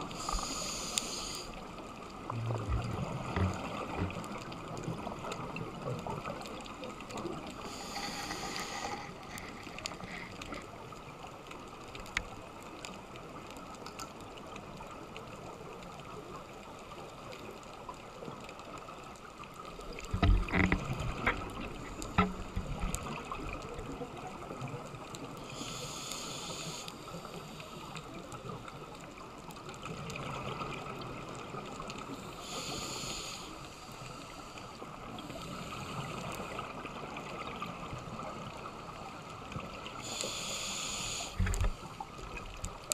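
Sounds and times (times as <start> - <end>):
underwater hiss: 0.0 - 1.9, 7.4 - 10.7, 25.4 - 28.6, 32.0 - 36.8, 39.8 - 42.3
faint clicks: 0.0 - 42.9.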